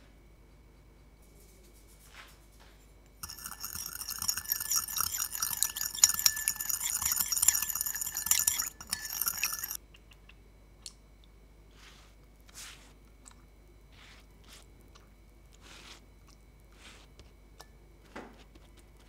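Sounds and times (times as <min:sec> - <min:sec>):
metal spoon scraping ceramic bowl: 0:03.2 - 0:09.8.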